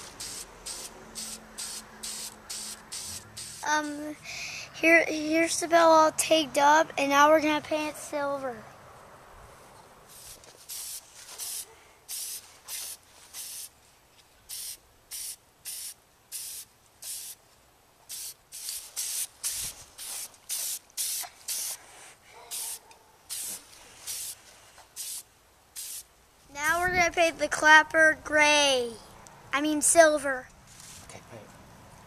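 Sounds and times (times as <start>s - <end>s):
spray paint can hissing: 0.0s - 4.2s, 10.1s - 13.7s, 14.5s - 17.4s, 18.1s - 21.8s, 22.5s - 26.1s.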